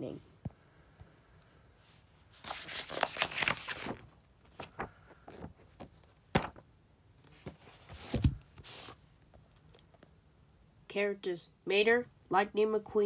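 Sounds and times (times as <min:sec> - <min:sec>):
book pages rustling: 0:02.3 - 0:06.6, 0:07.2 - 0:09.0
book cover thump: 0:05.8 - 0:06.6, 0:07.4 - 0:08.4.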